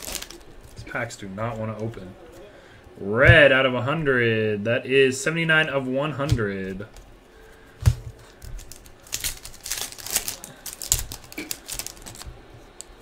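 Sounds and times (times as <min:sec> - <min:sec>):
foil wrapper crinkling: 0:00.0 - 0:01.0, 0:07.8 - 0:13.0
cards being handled: 0:07.8 - 0:13.0.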